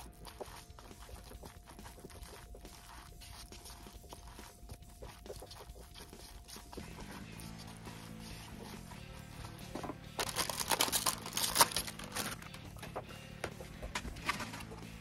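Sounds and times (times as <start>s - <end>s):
chopsticks clicking and scraping: 9.6s - 13.0s.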